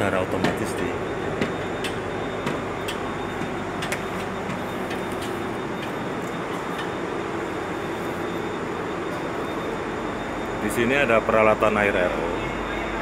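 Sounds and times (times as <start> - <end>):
diesel generator engines droning: 0.0 - 13.0.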